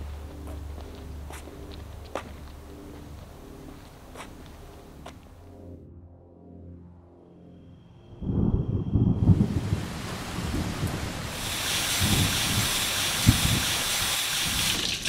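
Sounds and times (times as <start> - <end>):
steady rushing hiss: 0.0 - 5.4, 9.3 - 15.0
deep uneven rumbling: 0.0 - 5.6, 8.1 - 13.6.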